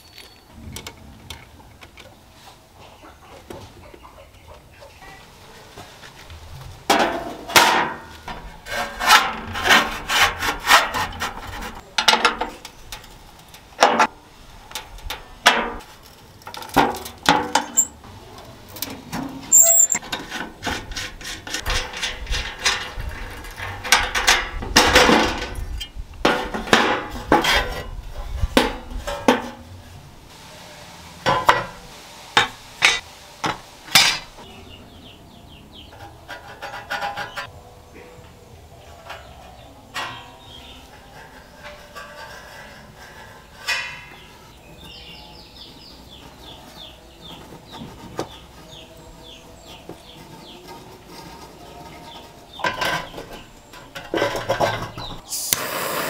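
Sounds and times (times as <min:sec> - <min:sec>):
metal scraping and rubbing: 0:06.5 - 0:30.0, 0:35.7 - 0:37.6, 0:38.8 - 0:55.2
hand tools tapping metal parts: 0:18.7 - 0:25.8.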